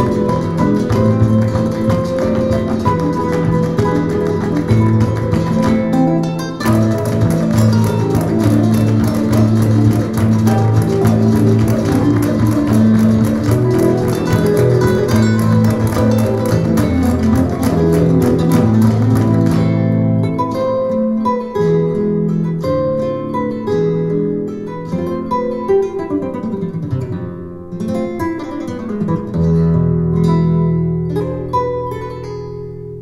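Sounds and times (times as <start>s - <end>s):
bass notes: 0.0s - 20.5s
flamenco guitar music: 0.0s - 33.0s.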